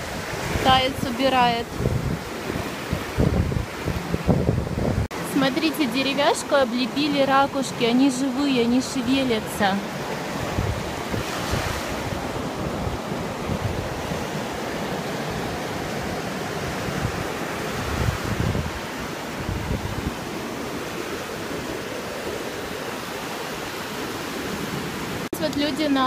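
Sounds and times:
wind buffeting microphone: 0.0s - 5.3s, 9.9s - 25.2s
sea surf breaking on beach: 0.0s - 26.0s.

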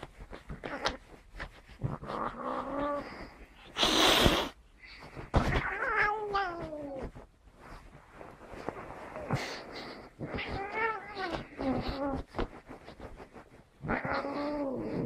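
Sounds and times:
cat hissing: 1.8s - 4.6s.

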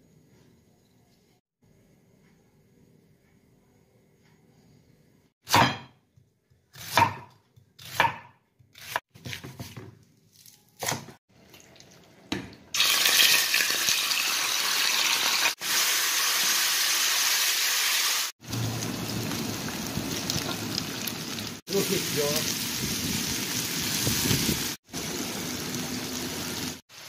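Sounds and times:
knife slicing onion on wooden board: 5.5s - 5.9s, 6.7s - 11.2s
meat sizzling in hot oil: 12.8s - 27.0s.

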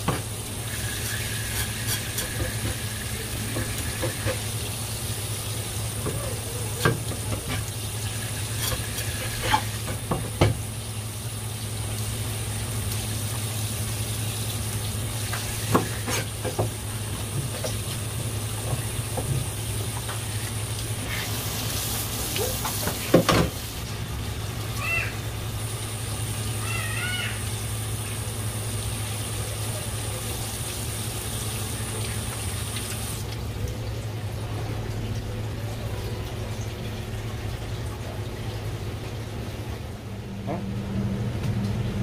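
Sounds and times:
tap water running: 0.0s - 42.0s
knocks on cutting board: 9.9s - 10.6s.

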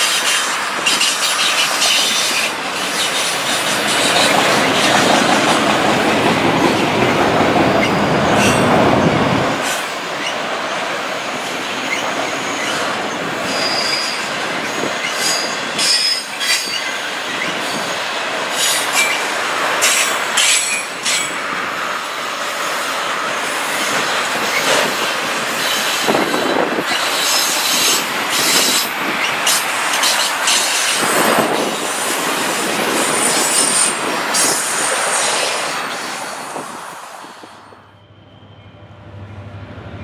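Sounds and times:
freight cars rumbling and rattling: 0.0s - 21.8s, 22.9s - 37.6s
high-pitched wheel squeals: 13.4s - 14.3s, 37.7s - 39.1s.

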